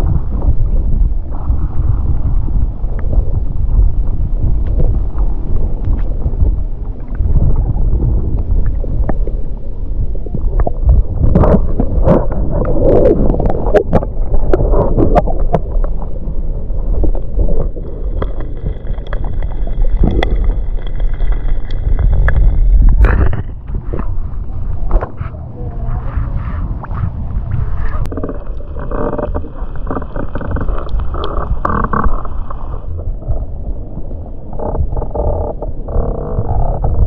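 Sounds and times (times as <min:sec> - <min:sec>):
muffled underwater sloshing: 0:00.0 - 0:37.0
water splashing: 0:03.0 - 0:35.3.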